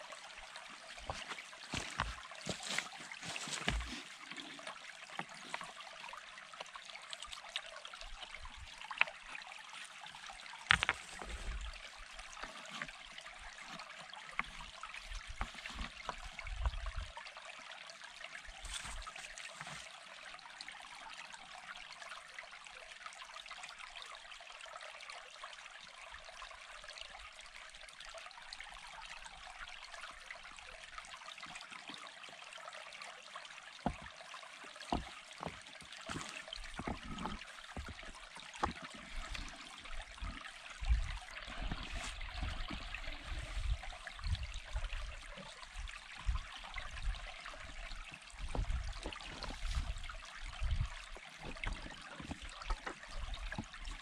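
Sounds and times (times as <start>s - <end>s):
stream rushing: 0.0s - 6.6s, 33.8s - 54.0s
stones knocking and thumping: 1.0s - 4.0s, 10.6s - 11.6s, 34.9s - 39.4s.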